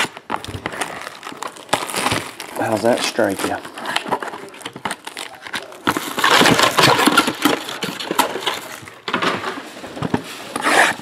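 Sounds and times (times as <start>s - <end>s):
plastic shrink wrap crinkling: 0.0s - 11.0s
cardboard boxes tapping and knocking: 3.4s - 11.0s.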